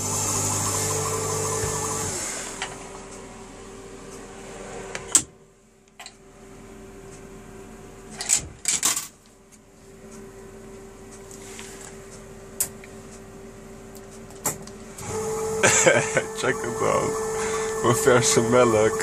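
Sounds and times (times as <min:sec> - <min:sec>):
vending machine humming: 0:00.0 - 0:08.2, 0:14.7 - 0:19.0.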